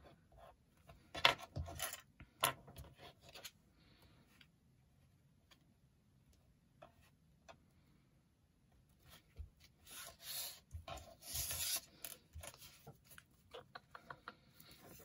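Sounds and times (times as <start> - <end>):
small taps and clicks: 13.1 - 14.8.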